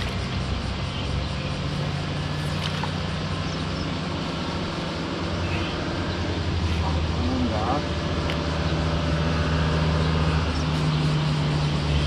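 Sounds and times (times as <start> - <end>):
engine droning: 0.0 - 12.0.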